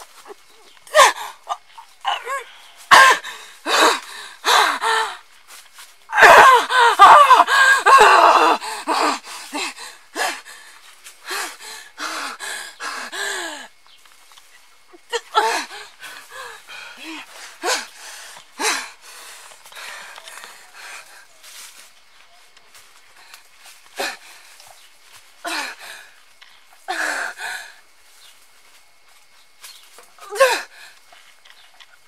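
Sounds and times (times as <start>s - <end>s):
woman's wordless cries: 0.1s - 5.3s, 6.1s - 13.7s, 14.9s - 19.2s, 25.4s - 26.1s, 26.8s - 27.8s, 30.2s - 31.0s.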